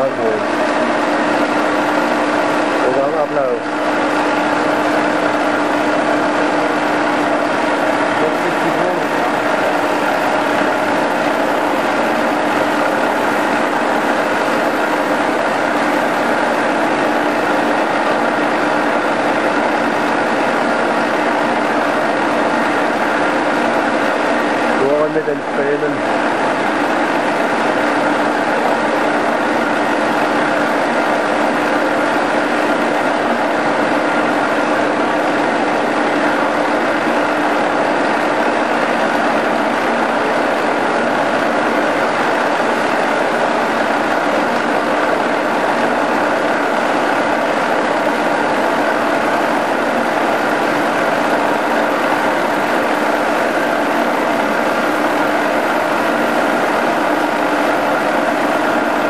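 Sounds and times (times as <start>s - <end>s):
milling machine running: 0.0s - 59.0s.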